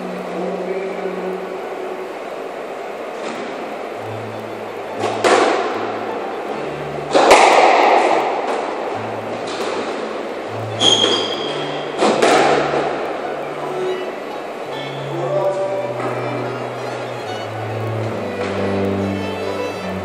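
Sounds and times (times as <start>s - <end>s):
squash ball smacks: 12.0s - 12.7s.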